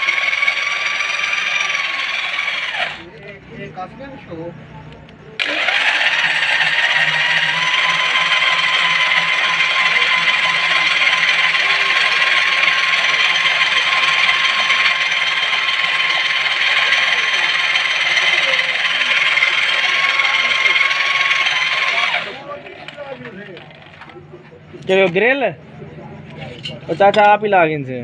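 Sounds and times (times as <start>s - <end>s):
electric drill whining: 0.0s - 3.1s, 5.4s - 22.4s.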